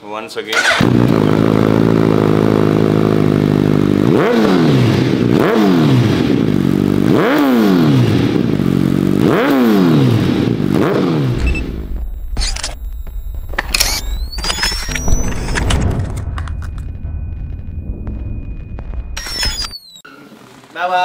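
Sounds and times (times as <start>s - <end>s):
motorcycle engine revving: 0.5s - 19.6s
motorcycle engine idling: 0.9s - 4.1s.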